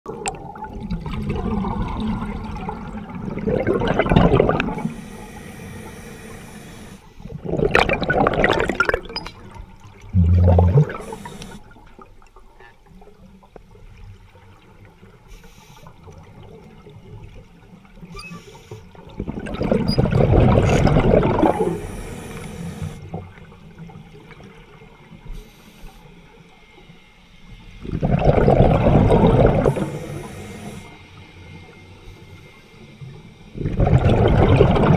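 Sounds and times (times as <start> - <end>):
underwater water noise: 0.0 - 34.9
underwater bubbles gurgling: 0.1 - 18.2, 18.8 - 25.6, 26.2 - 34.9
short low hum: 10.1 - 11.8.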